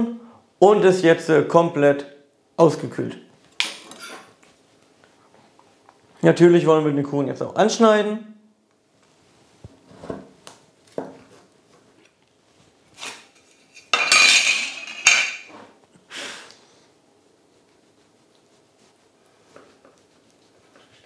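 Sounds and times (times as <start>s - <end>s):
knife scraping metal baking tin: 13.0s - 14.2s.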